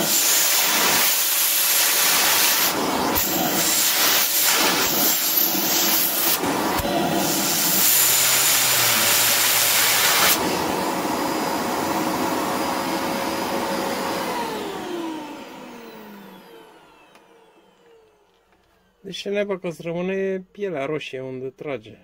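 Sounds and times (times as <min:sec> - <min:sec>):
vacuum cleaner running: 0:00.0 - 0:19.0
motor winding down whine: 0:06.0 - 0:10.5, 0:14.3 - 0:18.6.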